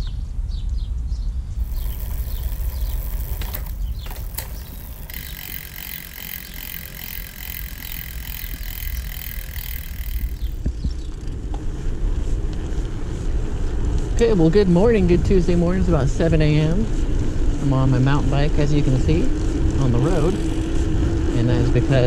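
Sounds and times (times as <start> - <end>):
high-pitched hissing buzz: 1.6 - 10.6
sharp clicks: 1.6 - 10.7.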